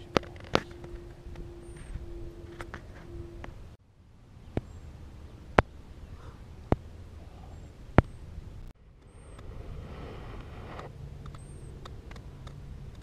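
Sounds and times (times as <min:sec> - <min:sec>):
low steady hum: 0:00.0 - 0:13.0
faint hiss: 0:08.9 - 0:11.2.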